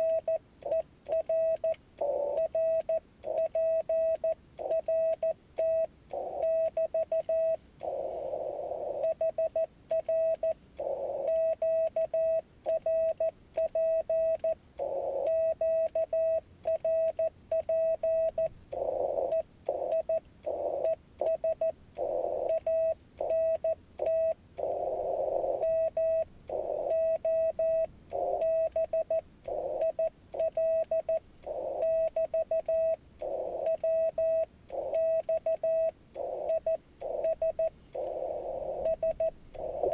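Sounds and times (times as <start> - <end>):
morse code tone: 0.0 - 39.9
radio hiss: 38.0 - 38.9, 39.6 - 39.9.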